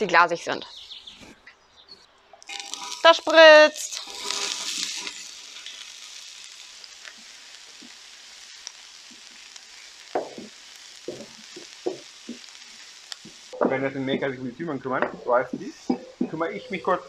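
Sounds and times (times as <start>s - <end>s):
onions sizzling in oil: 2.4s - 17.0s
stirring knocks and scrapes in pan: 10.2s - 12.6s, 15.0s - 16.4s.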